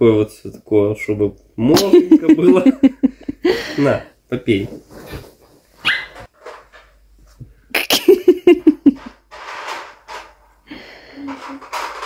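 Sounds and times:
dog yapping: 0:05.8 - 0:06.3
dog yelping softly: 0:05.8 - 0:06.3.

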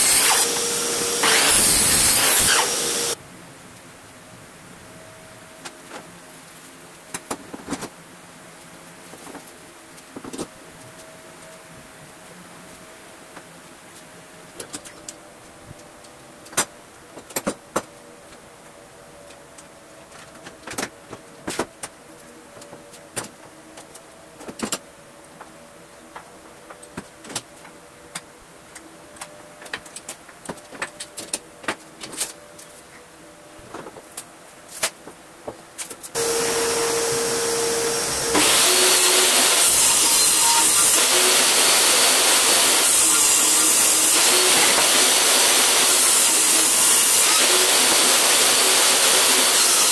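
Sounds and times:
table saw running: 0:00.0 - 0:03.2, 0:36.2 - 0:49.9.

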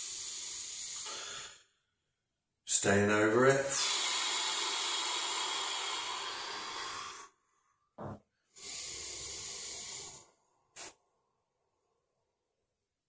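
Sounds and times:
man breathing deeply: 0:00.0 - 0:01.8, 0:03.7 - 0:11.0.

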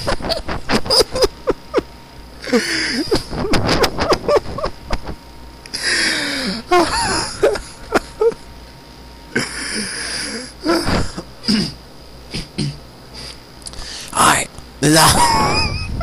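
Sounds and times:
person laughing hard: 0:00.0 - 0:05.2, 0:06.7 - 0:08.4, 0:15.0 - 0:16.0.

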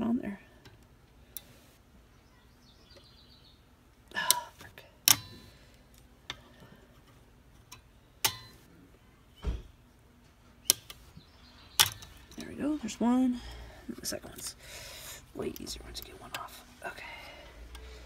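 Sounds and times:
sharp metallic clicks: 0:11.7 - 0:12.6.

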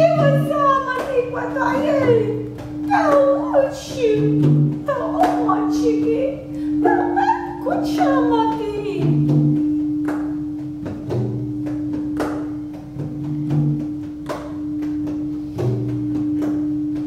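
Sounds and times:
soft hand percussion strikes: 0:00.0 - 0:17.0
singing bowl ringing: 0:04.9 - 0:08.8.

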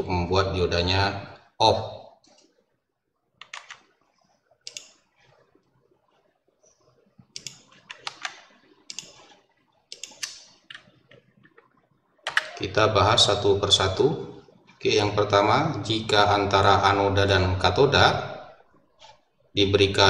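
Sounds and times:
computer keyboard keys clicking: 0:03.4 - 0:03.9, 0:07.4 - 0:09.2, 0:09.9 - 0:11.6, 0:12.3 - 0:12.6.

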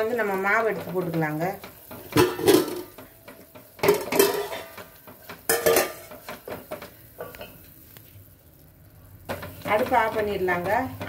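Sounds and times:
steel vessels clinking: 0:00.2 - 0:07.6.

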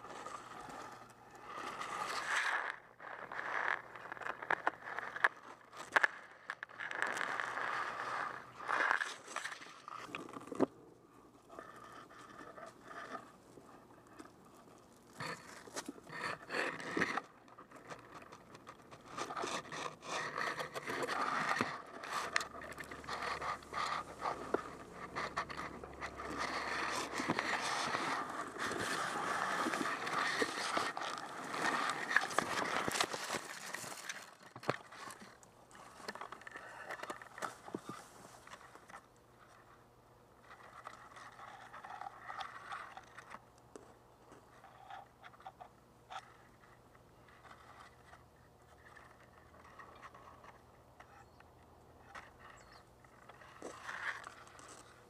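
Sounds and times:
grass rustling against camera: 0:16.8 - 0:39.7.

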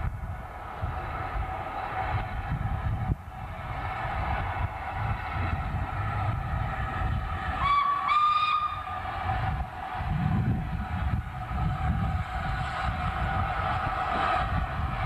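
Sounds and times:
steam locomotive running rumble: 0:00.0 - 0:15.0
steam whistle blasts: 0:07.6 - 0:09.0.

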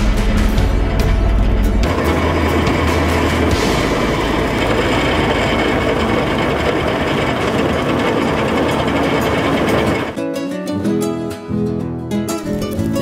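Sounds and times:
grape crusher machine clattering: 0:01.5 - 0:10.2.

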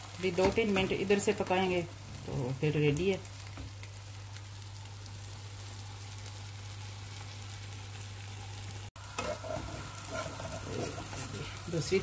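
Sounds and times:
omelette sizzling in a pan: 0:00.0 - 0:12.0
spatula scraping a pan: 0:09.1 - 0:11.7.

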